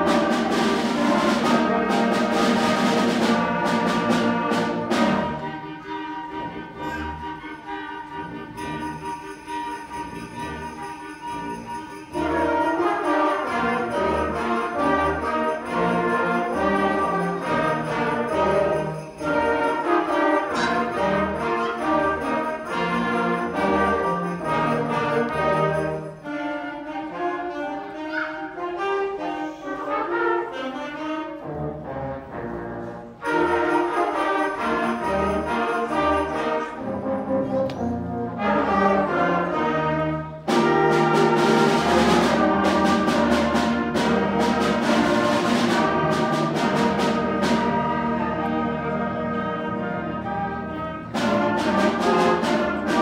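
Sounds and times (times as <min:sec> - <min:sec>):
concert band playing: 0:00.0 - 0:53.0
drum and cymbal strikes: 0:14.0 - 0:21.4.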